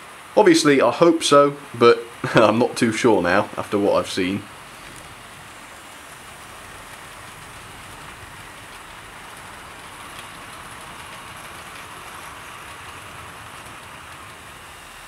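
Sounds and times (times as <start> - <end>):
model train running on track: 0.0 - 15.0
faint clicks: 8.6 - 14.5.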